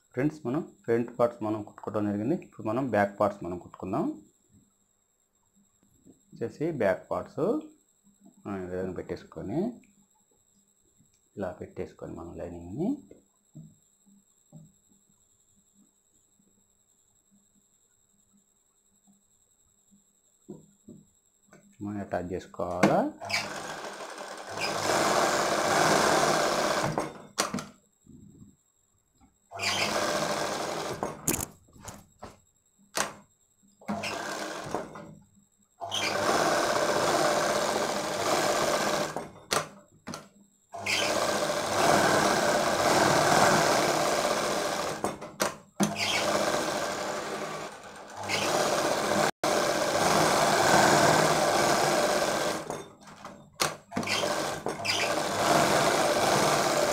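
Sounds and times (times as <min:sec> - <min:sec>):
sewing machine stitching fabric: 0:23.2 - 0:27.6, 0:29.5 - 0:32.0, 0:33.8 - 0:35.2, 0:35.8 - 0:39.7, 0:40.7 - 0:56.9.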